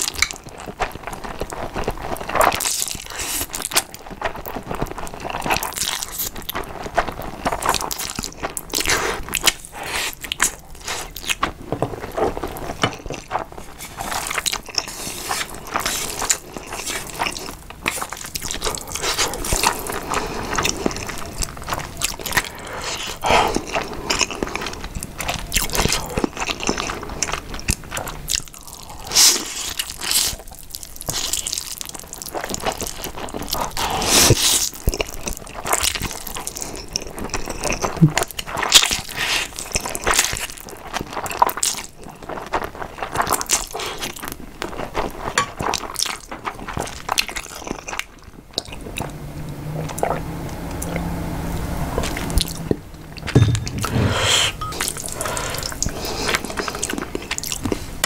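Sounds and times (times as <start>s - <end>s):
slurping and chewing noodles: 0.0s - 58.0s
person drinking water: 52.0s - 58.0s.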